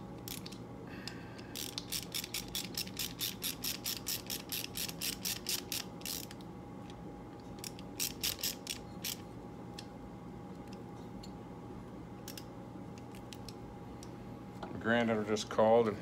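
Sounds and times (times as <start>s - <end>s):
rapid ratcheting clicks: 1.5s - 6.4s, 7.6s - 9.2s.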